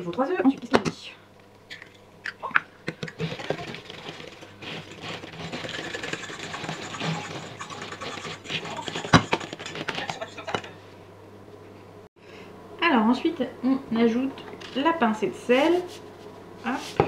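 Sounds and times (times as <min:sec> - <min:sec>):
whisk clattering against bowl: 0:03.0 - 0:10.7.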